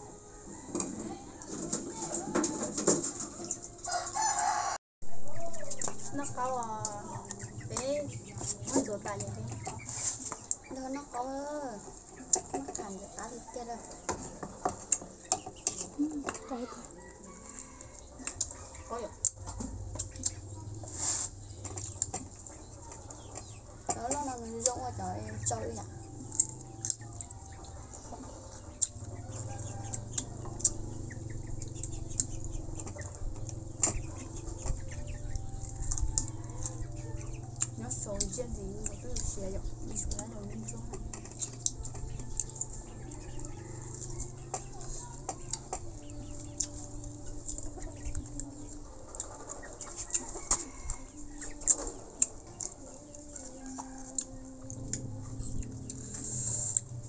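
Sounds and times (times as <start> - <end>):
birds calling: 3.1 - 56.8
people eating with fingers: 11.8 - 57.0
chewing: 12.0 - 57.0.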